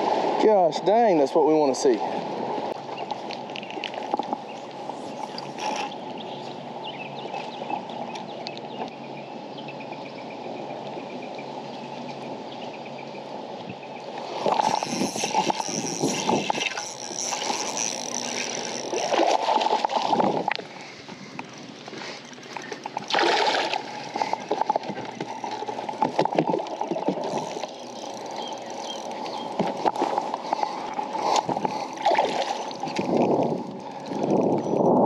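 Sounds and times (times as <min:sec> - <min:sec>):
fish splashing at the surface: 0:22.8 - 0:24.7.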